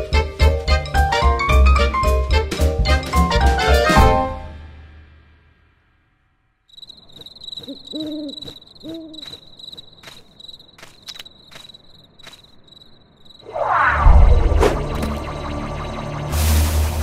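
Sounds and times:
crickets trilling: 6.7s - 13.6s
owl hooting: 7.1s - 9.5s.

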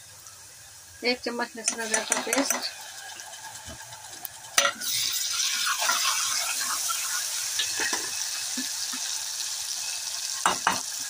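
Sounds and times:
paste sizzling in hot oil: 0.1s - 11.0s
spatula scraping pot: 1.7s - 3.8s.

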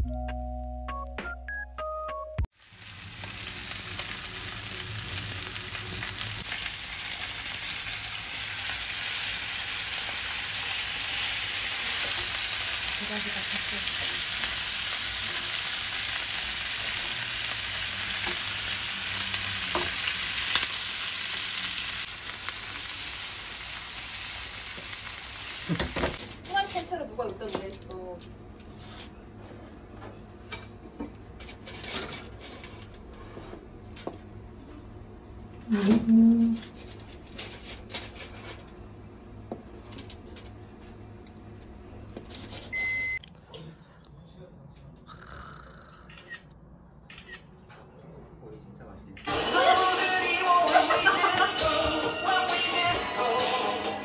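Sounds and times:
steaks sizzling in frying pan: 2.6s - 26.2s
knife cutting through foil: 36.6s - 38.6s.

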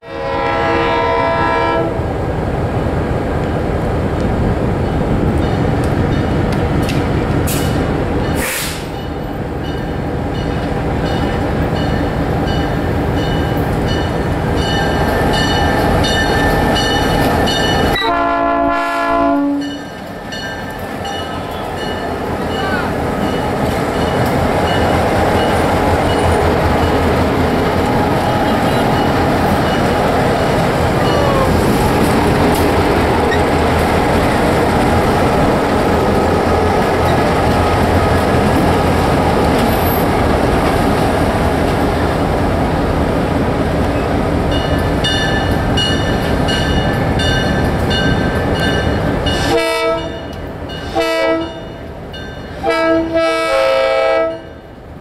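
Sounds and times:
locomotive horn blasts: 0.0s - 2.0s, 17.9s - 19.8s, 49.4s - 50.2s, 50.9s - 51.8s, 52.6s - 54.6s
diesel locomotives rumbling past: 0.0s - 55.0s
locomotive bell ringing: 7.6s - 18.2s, 19.4s - 31.6s, 44.5s - 52.6s.

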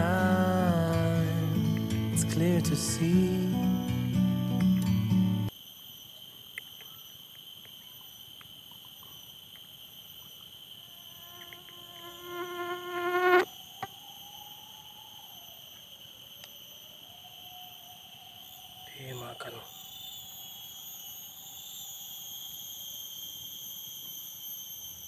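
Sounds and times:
humming tone with overtones: 0.0s - 5.5s
insects buzzing trill: 0.0s - 25.0s.

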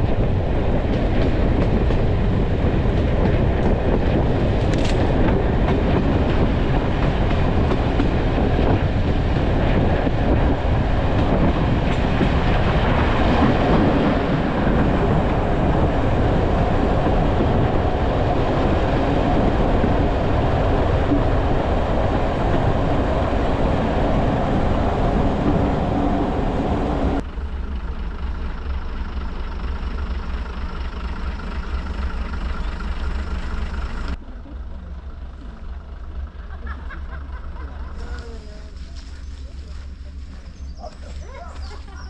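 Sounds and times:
rushing air: 0.0s - 27.2s
wind on microphone: 0.0s - 27.2s
train engine low hum: 0.0s - 42.0s
train wheels and engine rumbling: 0.0s - 42.0s.

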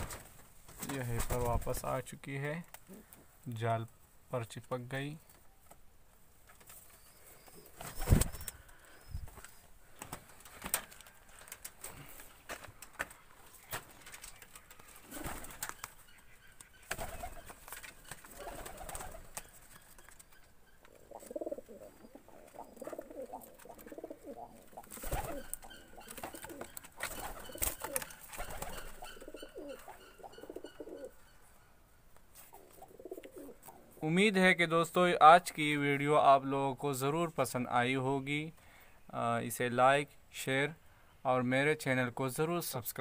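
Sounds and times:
pigeons cooing: 14.5s - 31.5s, 32.5s - 34.0s.

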